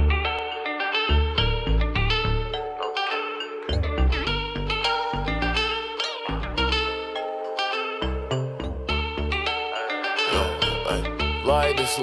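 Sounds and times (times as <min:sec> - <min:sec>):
plucked-string melody: 0:00.0 - 0:12.0
deep bass notes: 0:03.7 - 0:07.0, 0:10.4 - 0:11.5.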